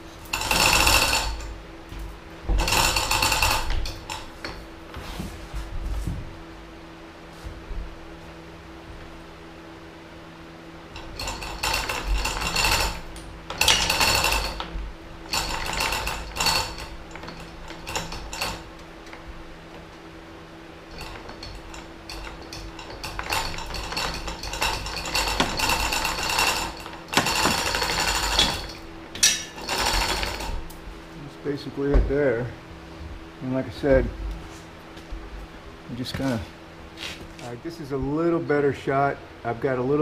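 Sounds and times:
steady low hum: 0:00.0 - 0:40.0
chain hoist rattling and clicking: 0:00.2 - 0:01.6, 0:02.6 - 0:04.3, 0:10.9 - 0:19.2, 0:20.9 - 0:30.6.

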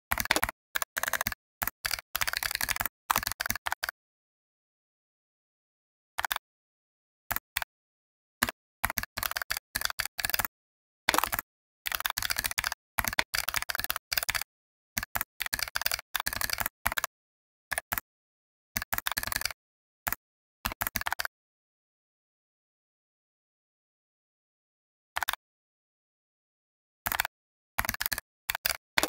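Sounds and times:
computer keyboard typing: 0:00.1 - 0:04.0, 0:06.2 - 0:06.4, 0:07.3 - 0:07.7, 0:08.4 - 0:10.5, 0:11.1 - 0:17.1, 0:17.7 - 0:18.1, 0:18.8 - 0:21.3, 0:25.2 - 0:25.4, 0:27.1 - 0:29.0.

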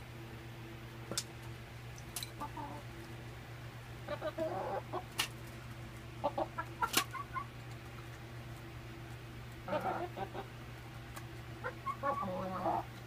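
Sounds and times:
hens clucking: 0:02.4 - 0:03.0, 0:04.0 - 0:08.7, 0:09.5 - 0:13.0.

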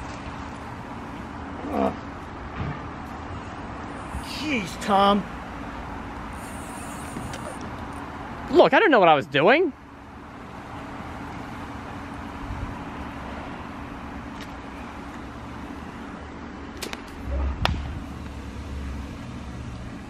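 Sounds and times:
brief low rumble: 0:17.2 - 0:18.2.

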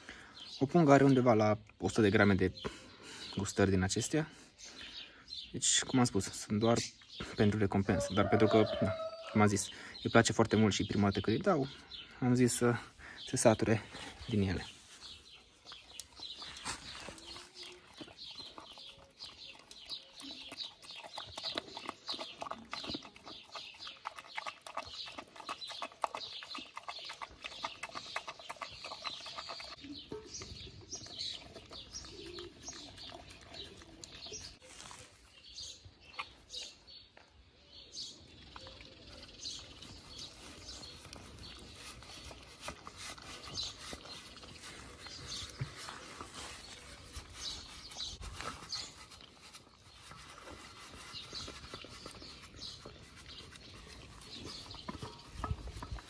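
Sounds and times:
dog chewing and licking: 0:15.0 - 0:34.6, 0:38.4 - 0:56.0.

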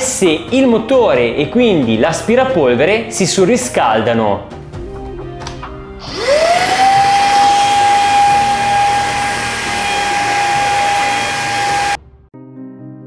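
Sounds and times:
handheld vacuum motor whine: 0:06.0 - 0:12.0.

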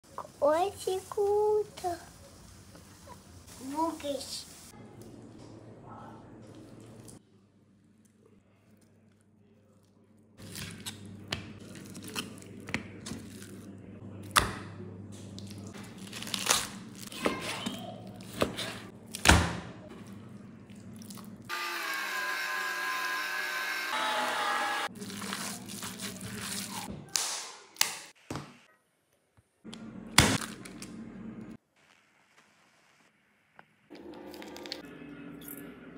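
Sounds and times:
raw meat being handled: 0:25.0 - 0:26.9.

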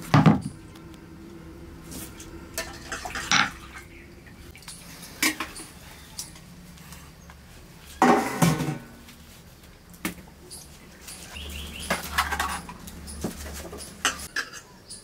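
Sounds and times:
water splashing in steel bowl: 0:02.5 - 0:05.5.

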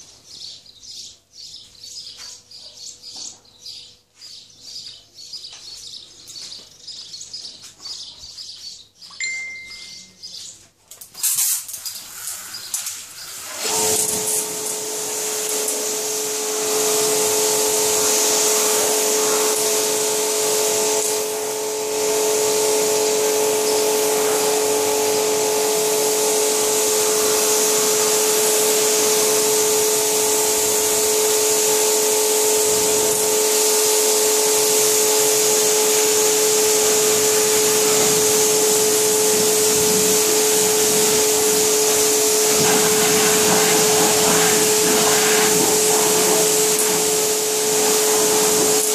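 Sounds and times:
water jet hissing: 0:11.3 - 0:48.9
pressure washer motor whine: 0:12.2 - 0:48.9.

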